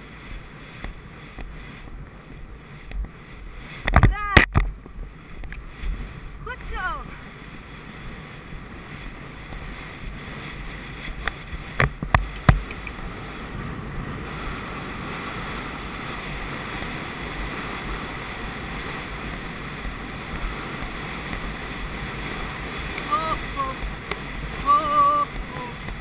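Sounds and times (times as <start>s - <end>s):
wind on microphone: 0.0s - 26.0s.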